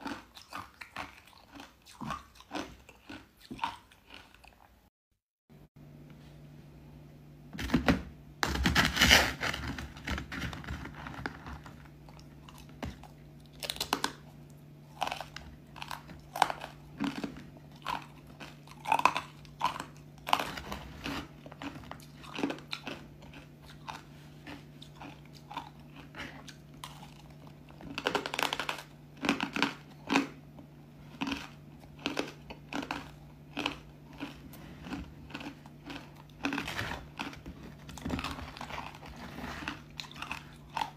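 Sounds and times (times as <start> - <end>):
faint low hum: 5.5 - 40.9
ice crunched between teeth: 14.9 - 30.4, 31.2 - 40.9.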